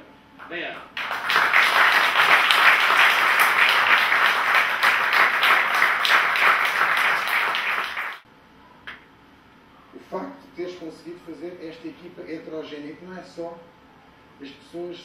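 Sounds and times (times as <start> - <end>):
audience applauding: 1.0 - 8.2.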